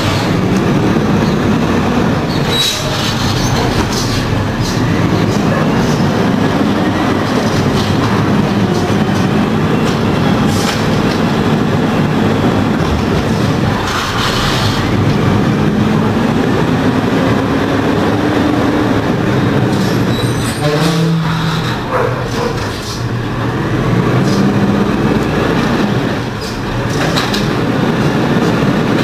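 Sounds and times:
garbage truck engine and hydraulic hum: 0.0 - 29.0
short high squeaks: 2.3 - 4.3.

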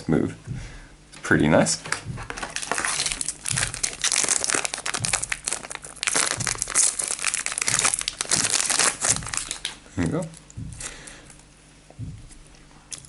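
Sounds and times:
foil wrapper crinkling: 2.3 - 9.8.

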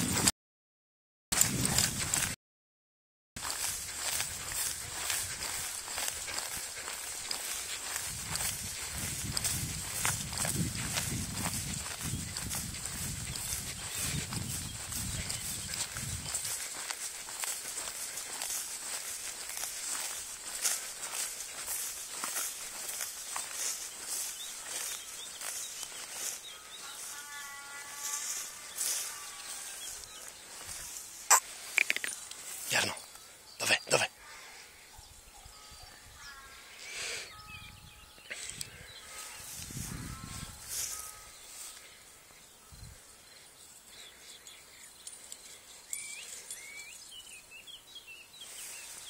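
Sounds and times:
footsteps swishing through grass: 1.4 - 2.3, 3.4 - 32.8, 39.0 - 42.0, 48.4 - 49.0
insects chirring: 3.4 - 34.4.

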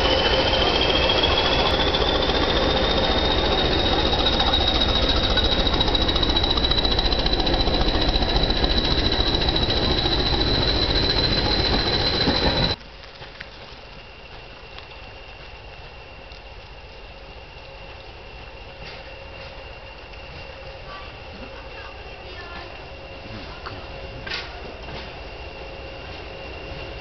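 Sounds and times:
diesel locomotive engine beat: 0.0 - 12.8, 14.0 - 27.0
turbocharger whistle: 0.0 - 12.8.

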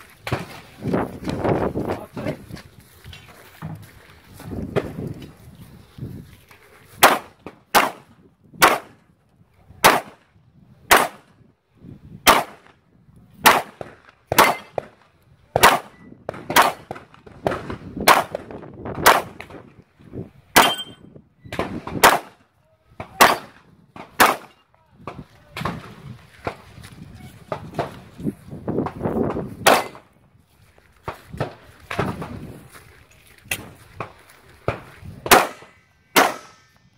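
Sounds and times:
pistol shots: 7.0 - 9.0, 9.8 - 10.2, 10.9 - 11.2, 12.3 - 12.7, 13.4 - 15.0, 15.6 - 19.5, 20.6 - 22.4, 23.0 - 24.6, 29.6 - 30.1, 35.2 - 36.6
steel plate ringing: 20.6 - 21.0.

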